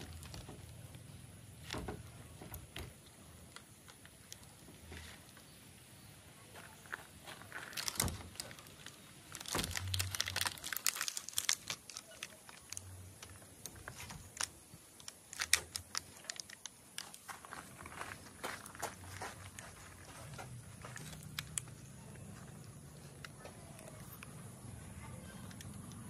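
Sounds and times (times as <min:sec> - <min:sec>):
plastic wrap crinkling: 0:00.0 - 0:00.7, 0:07.5 - 0:21.7.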